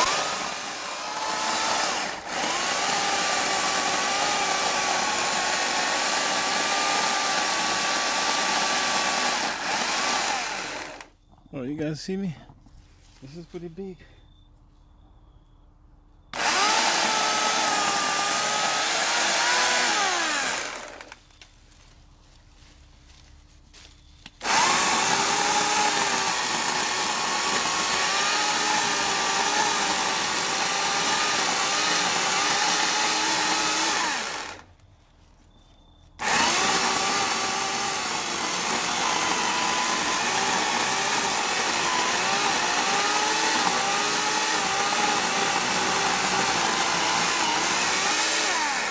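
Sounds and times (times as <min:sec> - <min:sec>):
electric chainsaw cutting wood: 0:00.0 - 0:11.1, 0:16.3 - 0:21.3, 0:24.3 - 0:34.7, 0:36.2 - 0:48.9.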